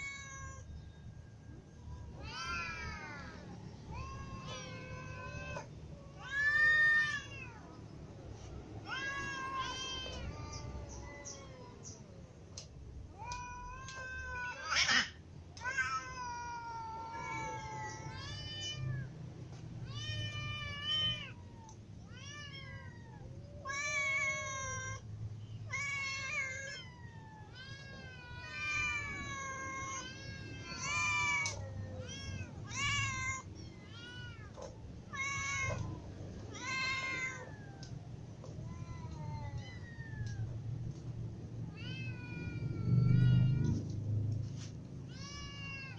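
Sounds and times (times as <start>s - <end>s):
cats meowing: 0.0s - 45.9s
harsh cat cry: 13.2s - 19.1s.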